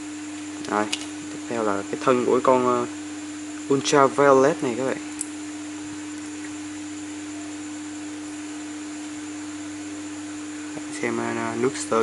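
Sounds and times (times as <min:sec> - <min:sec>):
steady hum: 0:00.0 - 0:12.0.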